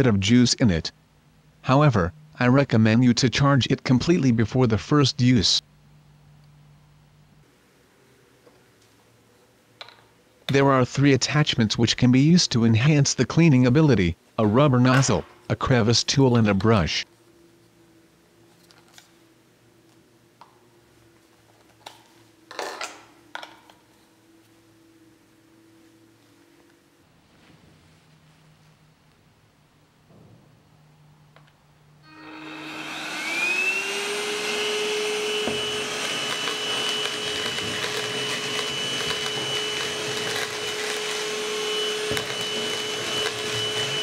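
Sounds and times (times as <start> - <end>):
handheld vacuum motor whine: 32.0 - 44.0.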